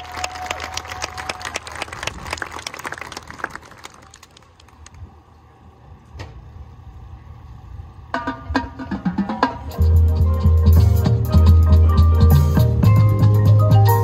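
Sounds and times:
crowd applause: 0.0 - 5.0
marimbas playing notes: 9.7 - 14.0.

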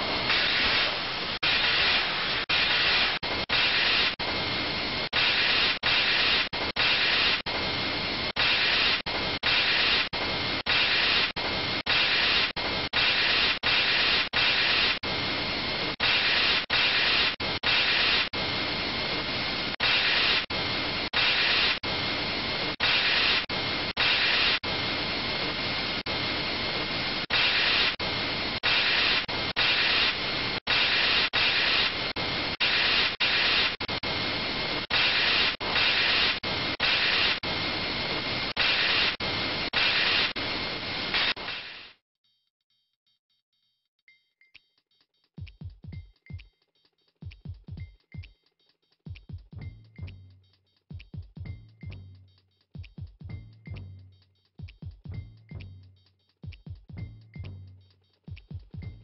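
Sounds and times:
saw machine hissing and whining: 0.0 - 42.0.

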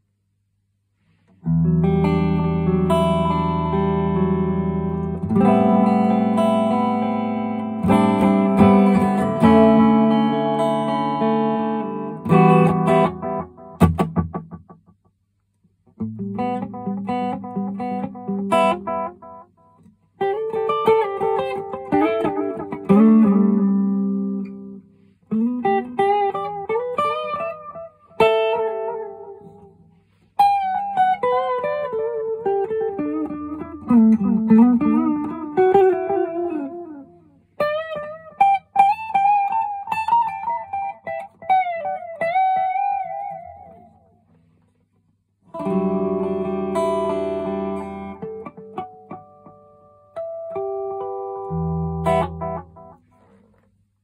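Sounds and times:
electric guitar lead phrases with echo: 1.4 - 14.7, 30.4 - 44.0, 45.5 - 53.3.

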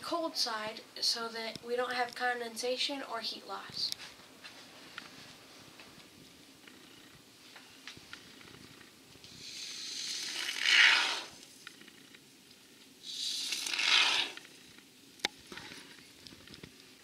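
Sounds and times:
spray foam can hissing and sputtering: 9.4 - 11.4, 13.0 - 14.4.

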